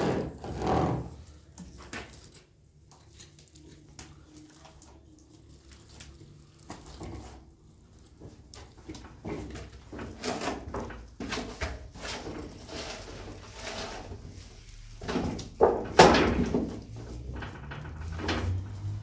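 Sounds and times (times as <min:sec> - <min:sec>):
trowel scraping wet plaster: 0:10.0 - 0:15.0.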